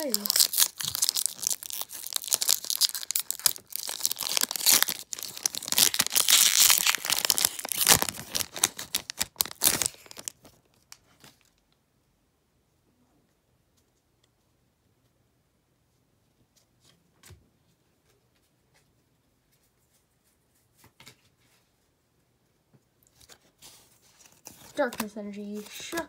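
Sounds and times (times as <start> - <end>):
foil wrapper tearing and crinkling: 0.0 - 11.5.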